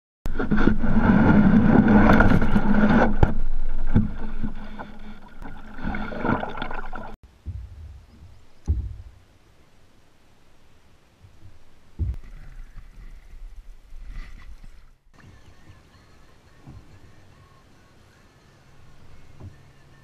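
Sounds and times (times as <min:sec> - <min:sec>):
kayak hull scraping over rocks: 0:00.3 - 0:07.2, 0:12.1 - 0:15.0
water and paddle noise: 0:00.3 - 0:19.9
dull thumps: 0:07.3 - 0:09.3, 0:11.2 - 0:12.5.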